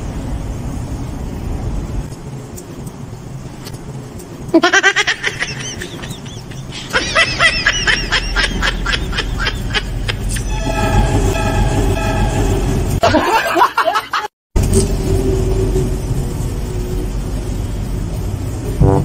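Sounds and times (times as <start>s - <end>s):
high-pitched cackling laugh: 4.5s - 10.5s, 13.0s - 14.3s
horn-like chord: 10.4s - 13.0s
long low horn-like blare: 10.4s - 13.0s, 18.7s - 19.0s
steady low hum: 14.6s - 19.0s.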